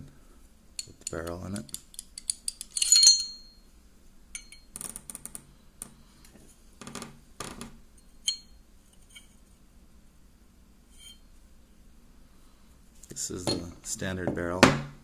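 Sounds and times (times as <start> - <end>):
pistol parts clicking and scraping: 0.8 - 3.4.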